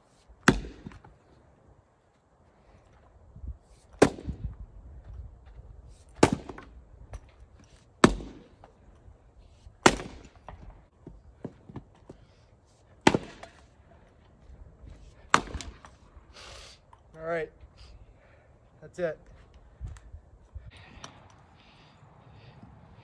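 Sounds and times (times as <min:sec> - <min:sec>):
axe splitting firewood: 0:00.2 - 0:01.2, 0:03.8 - 0:04.5, 0:06.0 - 0:08.8, 0:09.5 - 0:13.7, 0:15.1 - 0:16.0.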